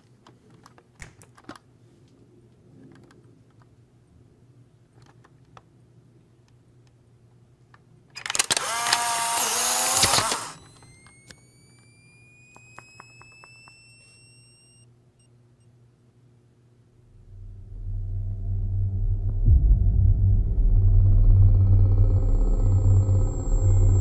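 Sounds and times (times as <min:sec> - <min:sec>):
camera motor whir: 0:08.2 - 0:14.8
flash recharging whine: 0:08.6 - 0:14.8, 0:20.5 - 0:24.0.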